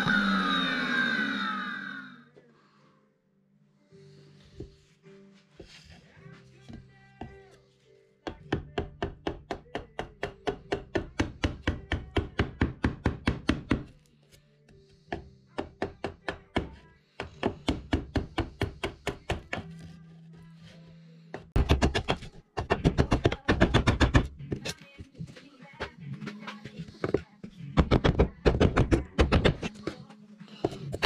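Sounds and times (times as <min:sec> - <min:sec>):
background music: 0:00.0 - 0:31.0
mallet striking wood chisel: 0:08.3 - 0:13.9, 0:15.1 - 0:19.8, 0:21.6 - 0:24.7.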